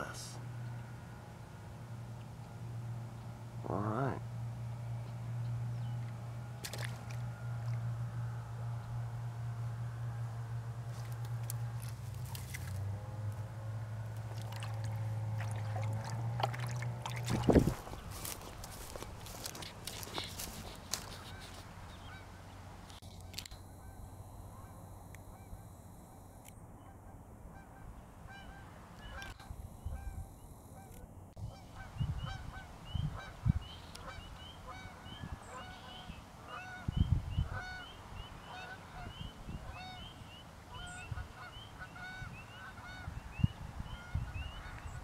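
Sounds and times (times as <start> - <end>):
geese honking: 13.7 - 22.6, 26.8 - 43.2, 43.8 - 45.0.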